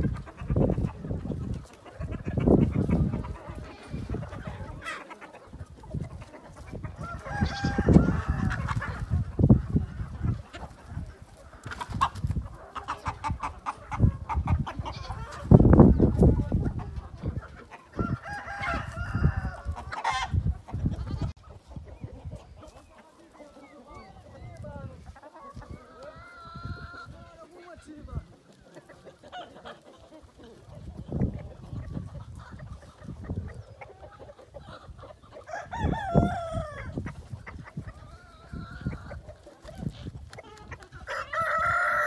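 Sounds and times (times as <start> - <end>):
chickens clucking: 0.0 - 42.0
rooster crowing: 7.0 - 8.6, 18.0 - 19.7, 35.5 - 36.8, 41.1 - 42.0.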